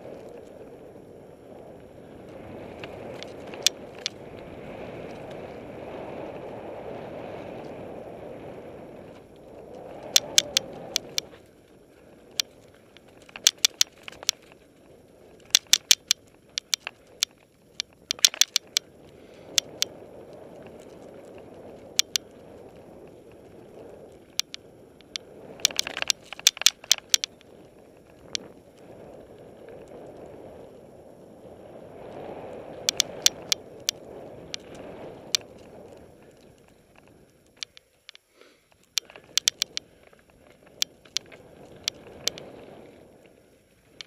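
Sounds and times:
bike rattling over bumps: 0:00.0 - 0:30.9.

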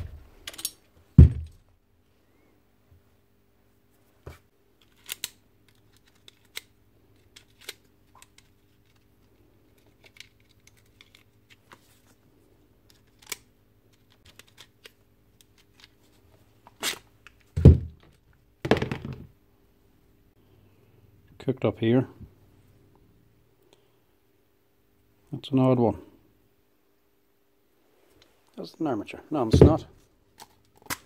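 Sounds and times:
screwdriver and metal parts clicking: 0:00.4 - 0:00.8.

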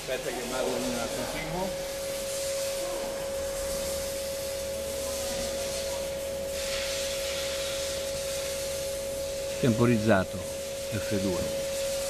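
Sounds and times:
machine whining: 0:00.0 - 0:12.0.

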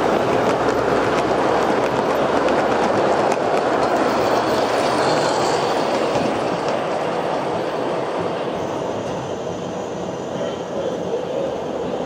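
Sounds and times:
model train wheels rumbling: 0:00.0 - 0:08.6.

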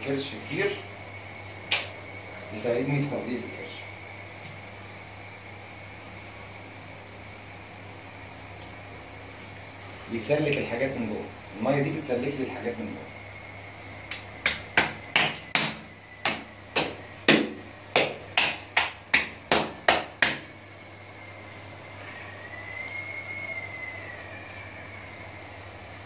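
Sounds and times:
hand slapping carcass: 0:14.1 - 0:20.5.

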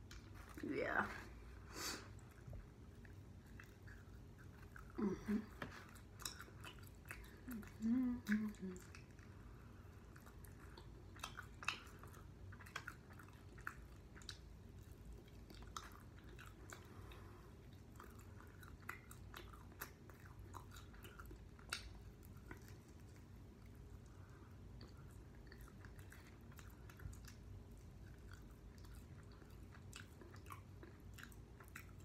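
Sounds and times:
person chewing chicken wings: 0:09.9 - 0:32.0.

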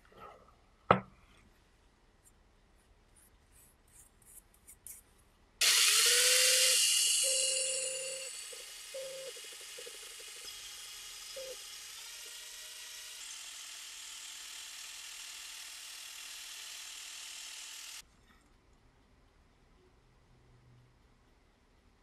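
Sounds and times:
drill buffing wheel whirring: 0:05.6 - 0:18.0.

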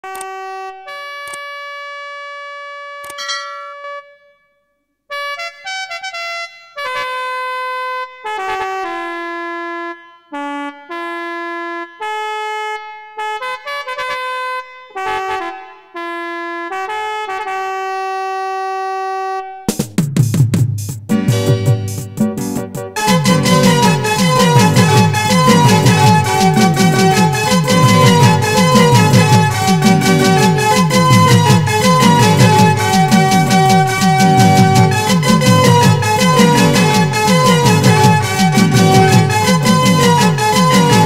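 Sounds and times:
beat and bass: 0:19.9 - 0:41.0
lead melody of held notes: 0:21.2 - 0:41.0.

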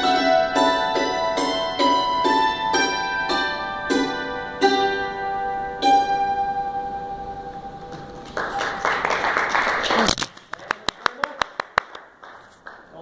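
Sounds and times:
hammered dulcimer playing a waltz: 0:00.0 - 0:08.7.

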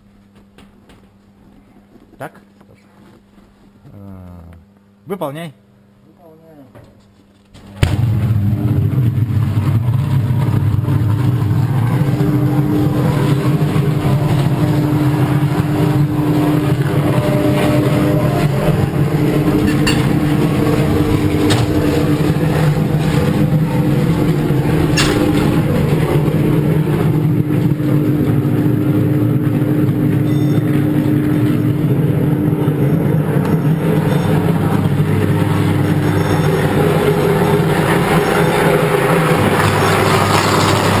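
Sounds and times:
electrical arc buzzing and crackling: 0:10.8 - 0:41.0.

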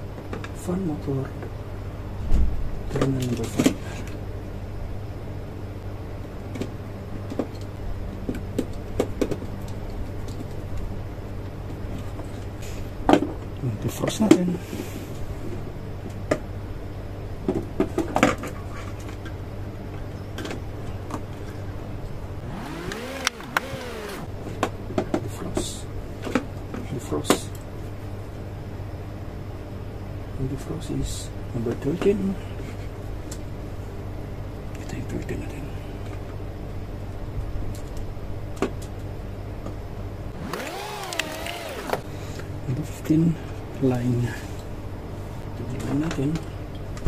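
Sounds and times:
steady low hum: 0:22.2 - 0:24.4, 0:40.1 - 0:42.4.

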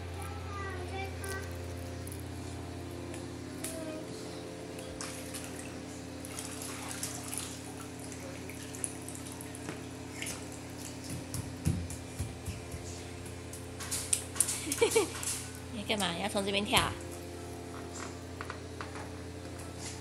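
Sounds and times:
steady low hum: 0:00.0 - 0:20.0
pool water splashing: 0:04.7 - 0:15.7.

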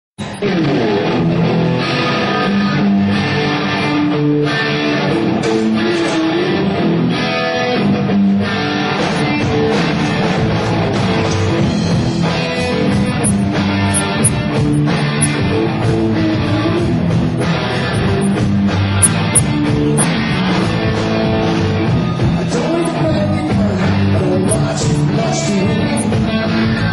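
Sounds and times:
rock band playing live: 0:00.4 - 0:13.0, 0:19.6 - 0:26.9.

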